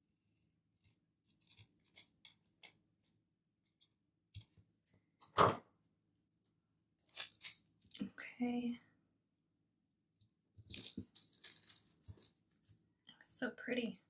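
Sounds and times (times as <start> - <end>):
scissors snipping paper: 0.0 - 4.6, 7.0 - 7.6, 10.6 - 12.8.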